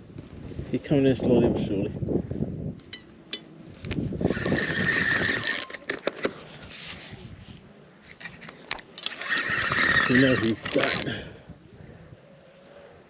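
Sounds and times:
fishing reel gears whining: 4.3s - 5.8s, 9.0s - 11.2s
reel clicks: 8.1s - 11.1s.

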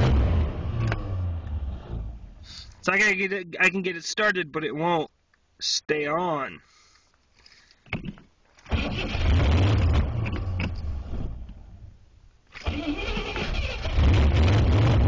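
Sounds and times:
car engine starting and running: 0.0s - 2.8s, 8.6s - 15.0s.

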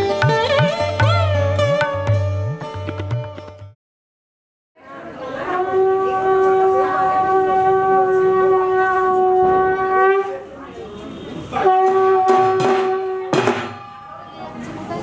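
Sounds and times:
conch shell blown: 5.4s - 10.4s, 11.6s - 14.0s.

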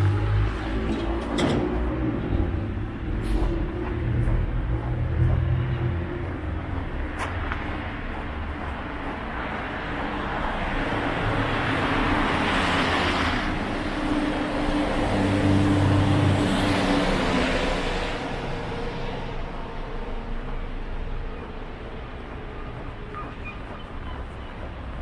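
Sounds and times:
cars driving past: 0.0s - 25.0s
traffic background: 0.0s - 25.0s.

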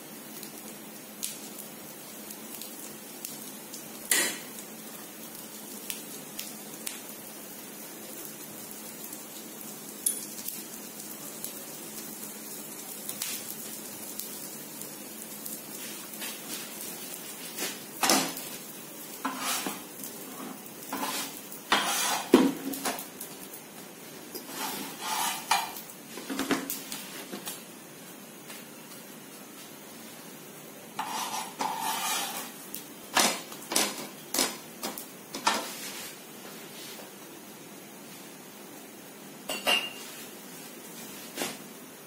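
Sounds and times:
faint steady hiss: 0.0s - 42.0s
metal utensils clinking on cookware: 39.5s - 40.1s.

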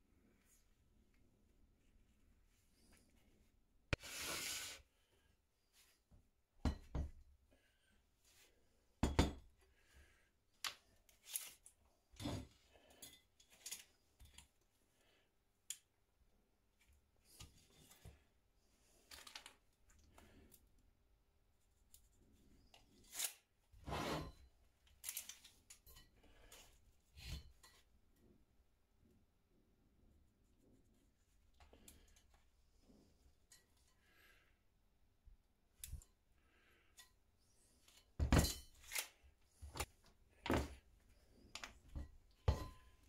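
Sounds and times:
light clicks and taps of tools: 10.6s - 14.7s, 15.6s - 16.0s, 19.1s - 20.7s, 31.5s - 32.5s, 35.7s - 36.2s, 37.8s - 43.0s.

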